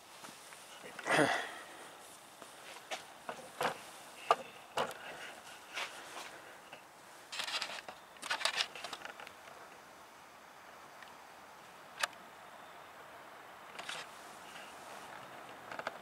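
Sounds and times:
crackly rustling: 0.0s - 10.2s, 13.7s - 16.0s
camera clicks: 7.4s - 9.3s, 13.7s - 14.1s.

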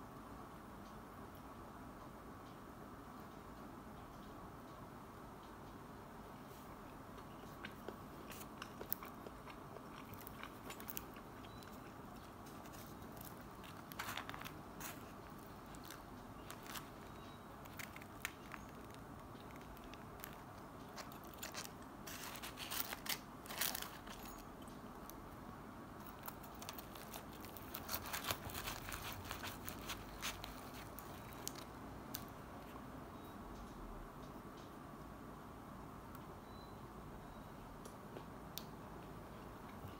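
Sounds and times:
crisp food crunches: 7.6s - 24.5s, 26.1s - 32.3s.

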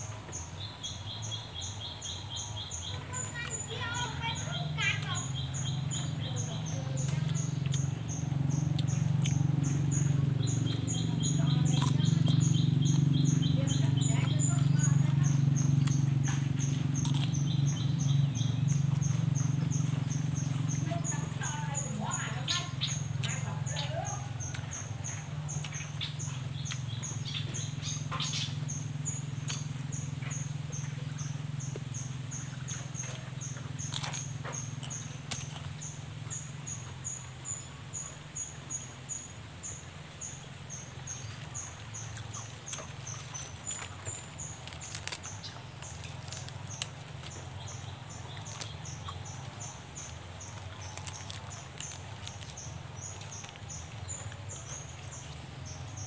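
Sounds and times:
high chirping call: 0.0s - 56.0s
low steady hum: 0.0s - 56.0s
fish being torn and chewed: 15.7s - 17.7s, 32.8s - 36.0s, 41.4s - 55.2s
clicks and crackles of charred fish: 18.7s - 36.7s, 40.5s - 56.0s.

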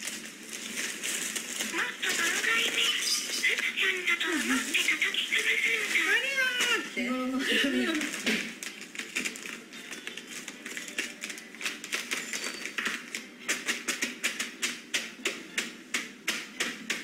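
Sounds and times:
dry food crunching in plastic bag: 0.0s - 13.4s
plastic bag rustling: 0.0s - 14.2s.

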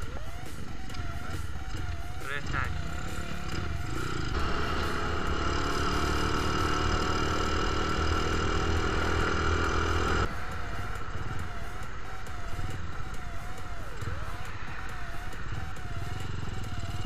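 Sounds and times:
small motorcycle engine running: 0.9s - 10.3s, 15.5s - 17.0s.

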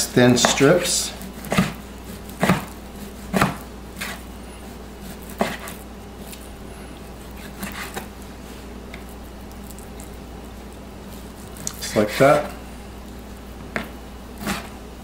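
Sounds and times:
knife slicing raw meat: 0.4s - 6.4s, 7.0s - 8.1s, 13.8s - 14.8s.

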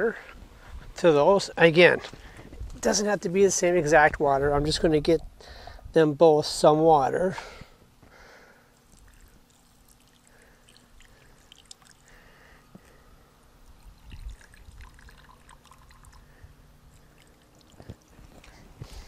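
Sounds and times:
water trickling into glass: 8.8s - 12.3s, 13.6s - 18.2s.

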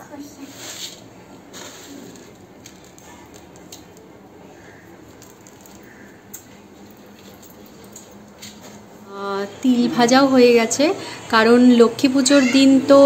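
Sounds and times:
fingers sifting puffed rice: 0.4s - 3.6s.

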